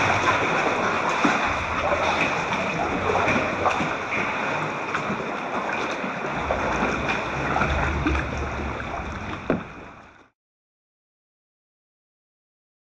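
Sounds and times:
steady low rumble: 0.0 - 10.3
water splashing against kayak: 0.0 - 10.3.

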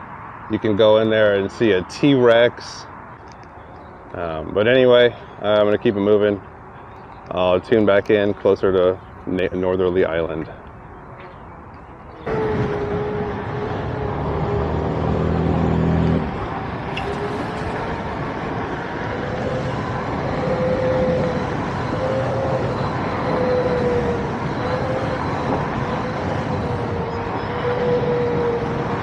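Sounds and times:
road noise: 0.0 - 29.0
wind rushing over microphone: 0.0 - 29.0
thin motor whine: 10.0 - 29.0
low hum: 10.3 - 29.0.

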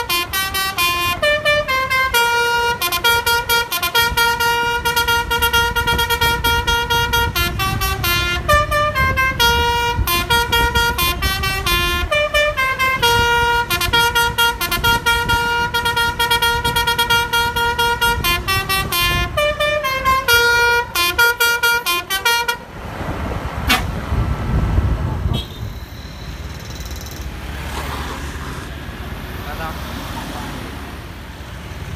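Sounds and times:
bus horn playing a tune: 0.0 - 22.8, 23.6 - 24.0, 25.1 - 25.8
bus engine rumble: 0.0 - 31.9.

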